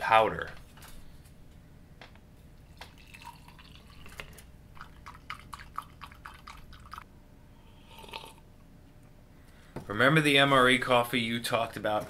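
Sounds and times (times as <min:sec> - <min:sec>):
hot water pouring into mug: 0:02.9 - 0:07.0.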